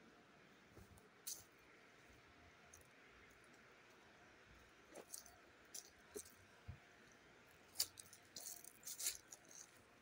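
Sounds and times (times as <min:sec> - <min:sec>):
footsteps crunching on dry leaves: 0:07.8 - 0:09.8.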